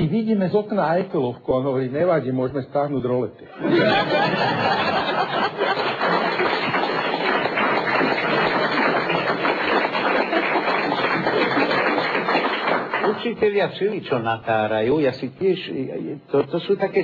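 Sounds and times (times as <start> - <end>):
audience applauding: 3.8 - 13.6.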